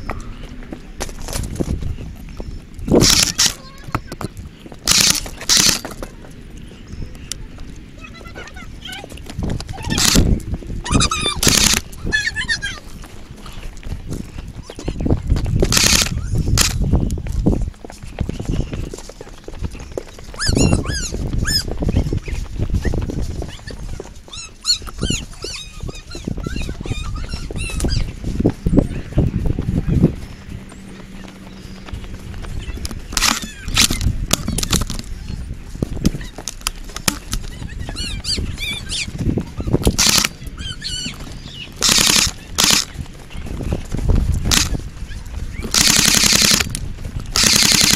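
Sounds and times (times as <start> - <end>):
footsteps crunching on gravel: 0.0 - 47.9
high chirping calls: 1.9 - 13.7, 18.0 - 47.9
high-pitched animal yelps: 10.8 - 12.8, 20.4 - 22.0, 23.5 - 28.1, 40.6 - 41.2.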